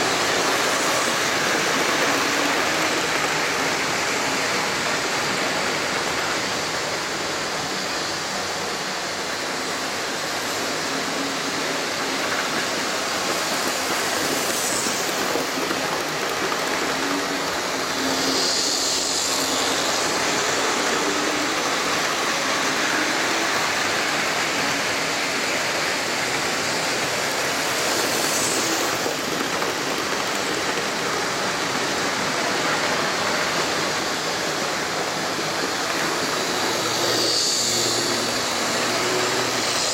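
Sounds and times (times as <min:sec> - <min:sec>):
model train wheels on track: 0:00.0 - 0:39.9.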